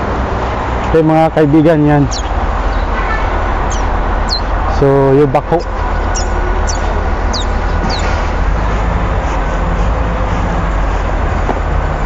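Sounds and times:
high falling chirps: 2.0s - 3.0s, 3.6s - 4.6s, 5.6s - 8.2s.

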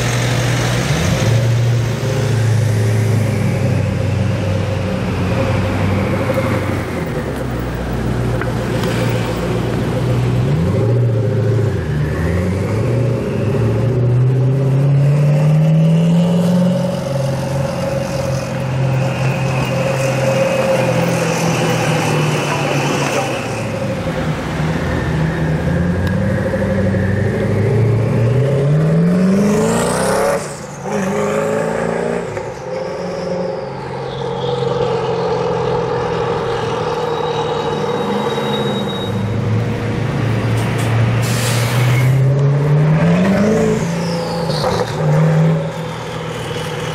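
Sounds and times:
car engine revving: 0.0s - 38.4s
high turbo whistles: 16.8s - 28.6s, 32.2s - 42.3s, 43.4s - 45.0s.

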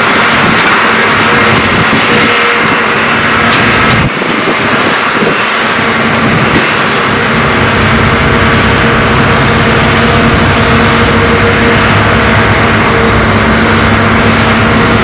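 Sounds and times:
excavator diesel engines droning: 0.0s - 15.0s.

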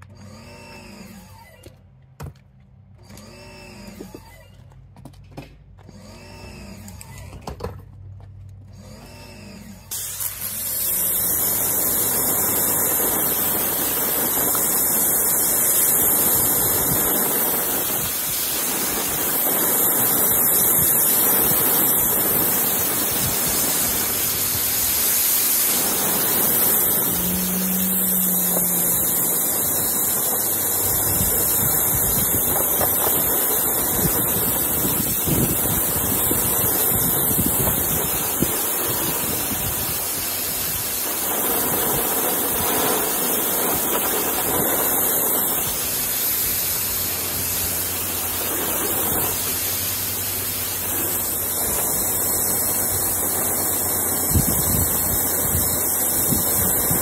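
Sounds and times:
low steady hum: 6.4s - 34.8s
pressure washer spraying water: 9.8s - 57.0s.

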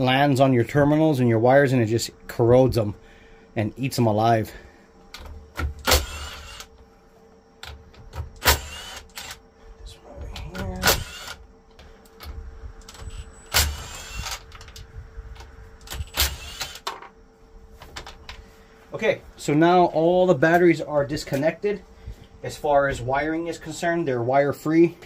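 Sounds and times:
cordless power tool whining: 5.2s - 6.7s, 8.4s - 9.4s, 10.3s - 11.4s, 12.8s - 14.8s, 15.8s - 16.9s.

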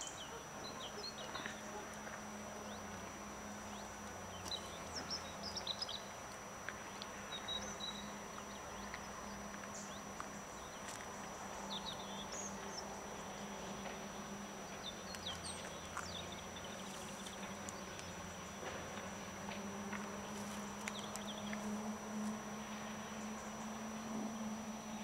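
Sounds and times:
steady low hum: 0.0s - 25.0s
thin high whine: 0.0s - 25.0s
small birds chirping: 3.6s - 13.9s, 14.6s - 18.8s, 20.1s - 21.9s.

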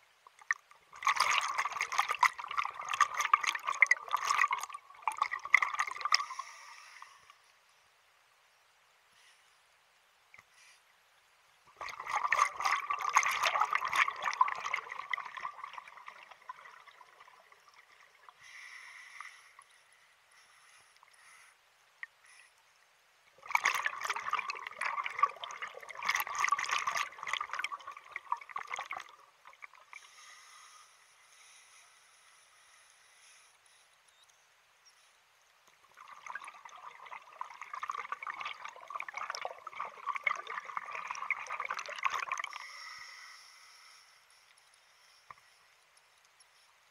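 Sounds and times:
faint hiss: 0.0s - 46.9s
exhaled bubbles from regulator: 0.4s - 6.6s, 11.8s - 18.4s, 23.4s - 30.1s, 35.9s - 42.8s.

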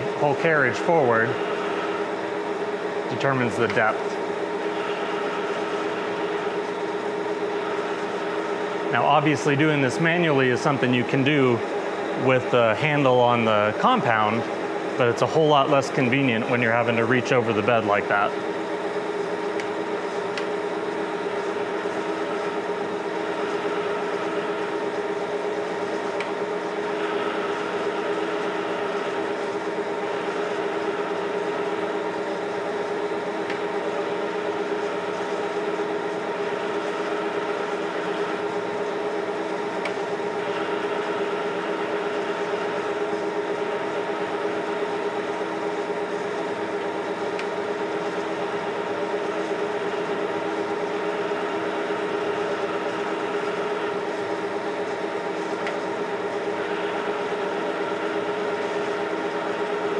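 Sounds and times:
lathe motor hum: 0.0s - 59.9s.

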